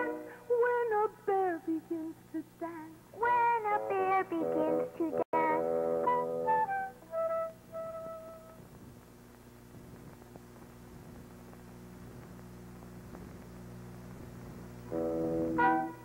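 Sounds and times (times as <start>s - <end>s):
faint hiss: 0.0s - 16.0s
low steady hum: 0.0s - 16.0s
held musical note: 14.9s - 16.0s.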